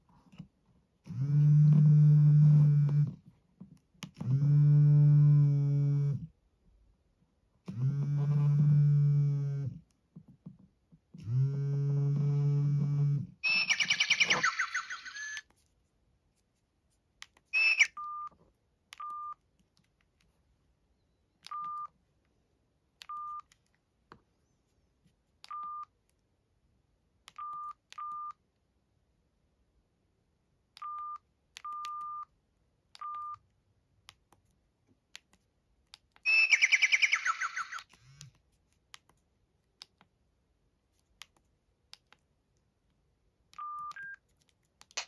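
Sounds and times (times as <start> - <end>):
phone keypad beeps: 17.6 - 18.4, 21.4 - 22.0, 27.3 - 28.4, 30.8 - 32.3, 33.0 - 33.4, 43.6 - 44.2.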